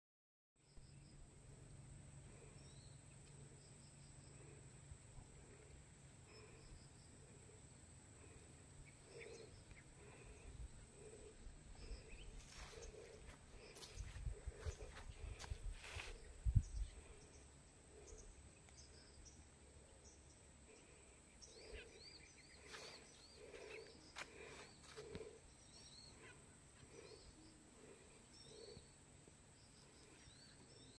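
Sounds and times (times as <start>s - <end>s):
birds chirping: 2.3s - 30.9s.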